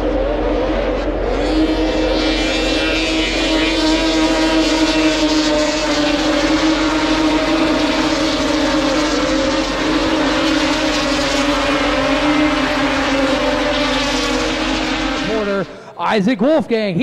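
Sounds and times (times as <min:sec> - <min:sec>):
snowmobile engines droning: 0:00.0 - 0:17.0.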